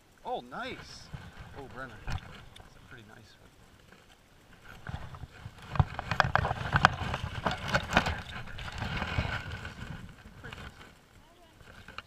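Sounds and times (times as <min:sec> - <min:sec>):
microphone handling rustling: 0:00.6 - 0:11.0
sharp clicks and knocks: 0:03.9 - 0:09.7.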